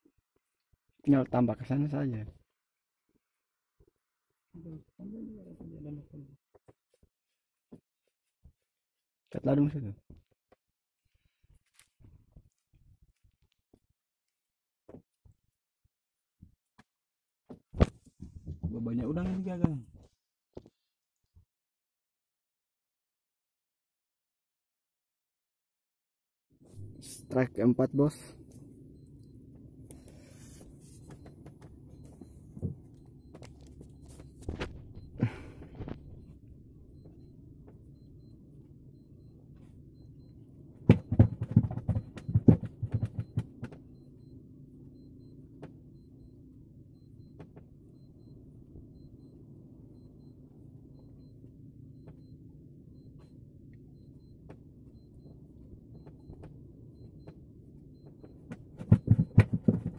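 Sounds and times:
low steady hum: 26.7 - 59.9
scattered knocks: 40.9 - 43.8, 58.1 - 59.9.

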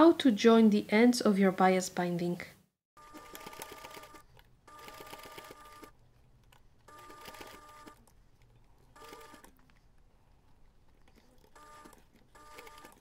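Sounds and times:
sewing machine stitching: 3.0 - 5.9, 6.9 - 9.6, 11.0 - 13.0.

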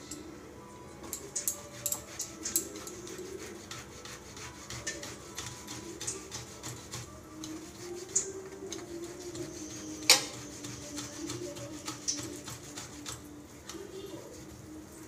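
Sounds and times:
potato grating on box grater: 1.6 - 13.3.

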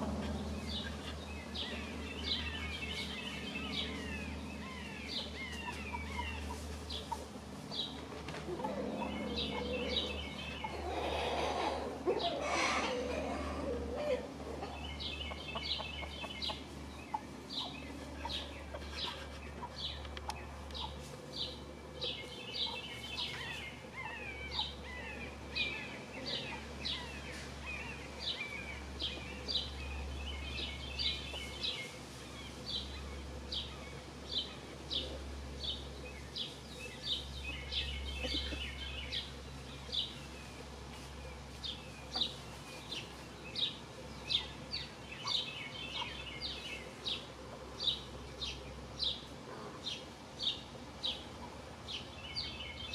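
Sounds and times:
steady low rumble: 0.0 - 10.9
songbirds chirping: 0.0 - 52.9.

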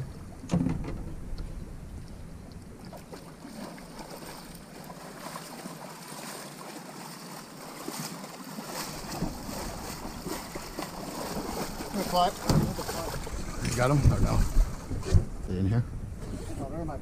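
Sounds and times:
water splashing against boat hull: 0.0 - 15.4
wind on microphone: 9.0 - 17.0.

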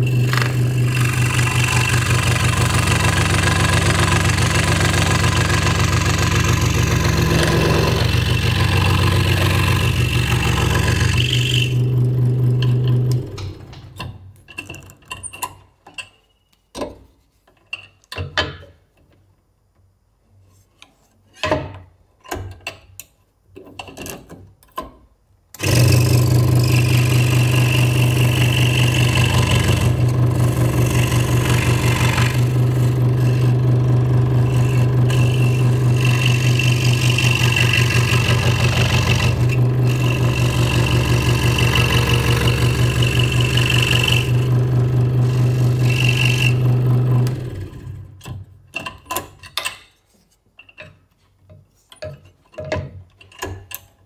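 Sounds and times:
scroll saw cutting wood: 0.0 - 13.9, 25.6 - 48.2
clicks and knocks of handling: 48.2 - 54.0.

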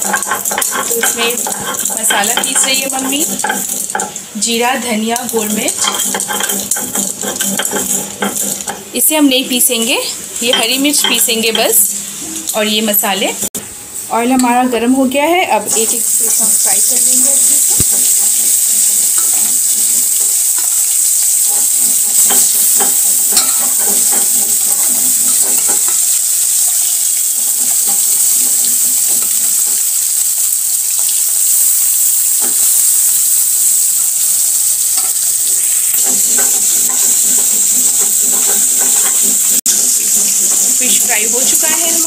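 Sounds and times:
fish sizzling in hot oil: 0.0 - 14.7, 15.5 - 42.0.

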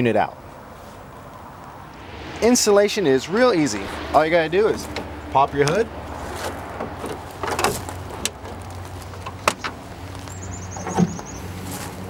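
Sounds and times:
steady low hum: 1.8 - 8.2.

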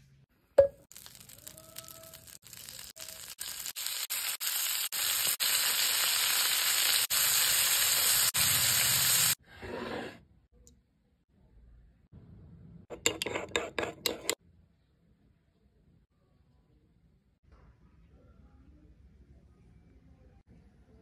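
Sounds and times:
food sizzling in a frying pan: 0.9 - 9.4
spatula scraping a pan: 9.5 - 10.2, 12.9 - 14.4.

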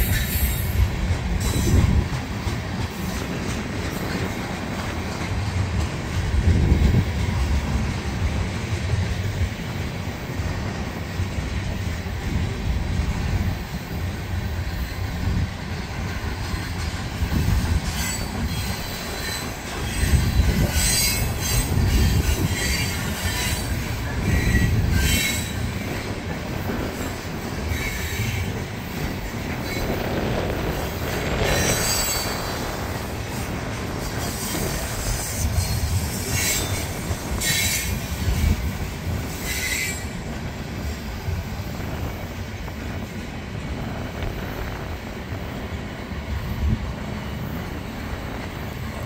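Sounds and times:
train wheels rumbling on rail: 0.0 - 49.0
high-pitched wheel squeal: 31.3 - 32.8, 34.0 - 38.6, 39.2 - 40.2.

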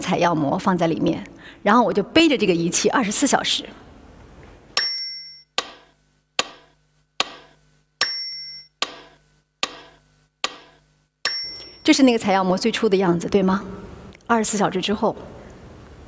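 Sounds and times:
bell-like ding: 4.8 - 5.5, 8.0 - 8.8, 11.2 - 11.9.

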